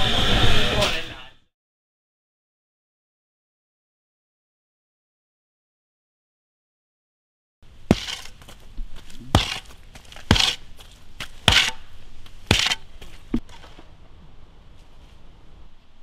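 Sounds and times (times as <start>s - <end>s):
crunch or scrape: 7.9s - 11.8s, 12.4s - 13.8s.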